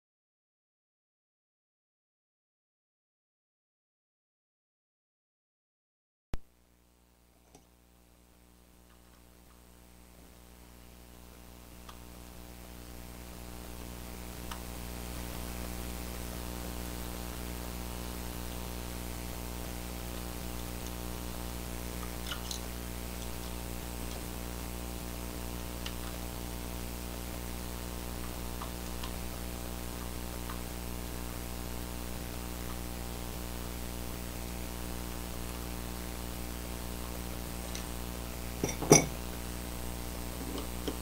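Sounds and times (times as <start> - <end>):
electrical hum: 6.4 - 41.0.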